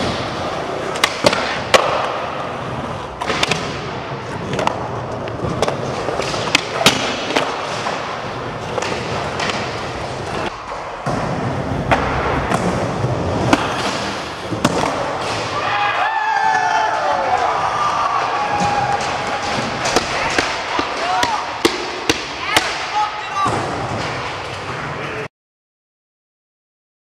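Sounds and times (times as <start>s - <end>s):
skateboard clacking: 0.0s - 2.3s, 18.3s - 22.8s
skateboard wheels rolling: 0.0s - 22.2s.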